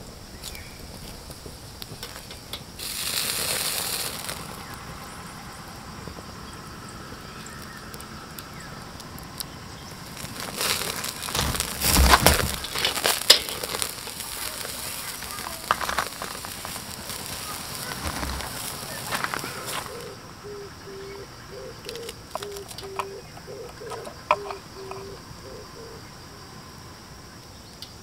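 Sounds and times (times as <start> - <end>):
wood fire crackling: 0.0 - 25.4
hissing: 0.8 - 27.4
low thumps: 8.8 - 20.2
knocks and rattles: 10.0 - 19.4.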